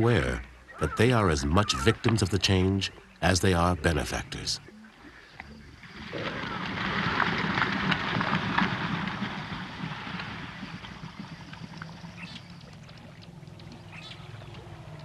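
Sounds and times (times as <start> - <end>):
fire rumbling and crackling: 5.8 - 14.4.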